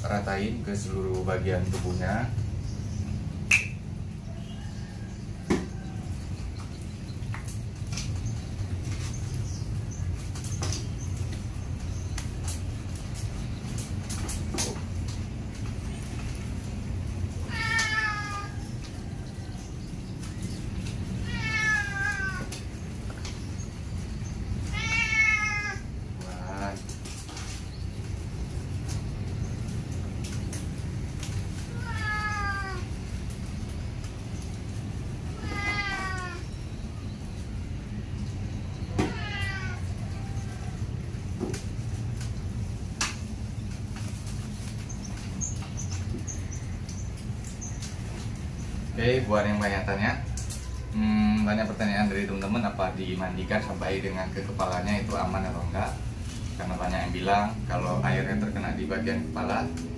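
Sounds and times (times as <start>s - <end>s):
cat meowing: 17.4s - 18.6s, 21.2s - 22.6s, 24.6s - 26.6s, 31.6s - 32.9s, 35.4s - 36.6s, 38.9s - 40.8s.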